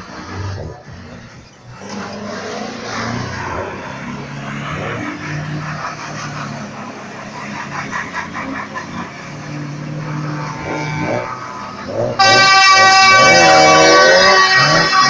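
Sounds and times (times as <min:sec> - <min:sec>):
diesel truck engine revving: 0:00.0 - 0:15.0.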